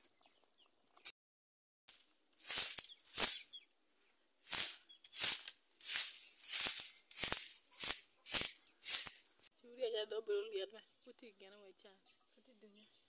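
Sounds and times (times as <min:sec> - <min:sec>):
shaker rhythm: 0:01.9 - 0:03.6, 0:04.4 - 0:09.5.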